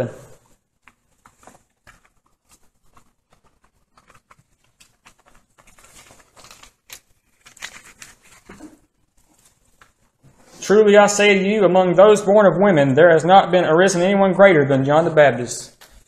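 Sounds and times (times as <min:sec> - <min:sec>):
thin pages rustling: 0:00.5 - 0:10.6.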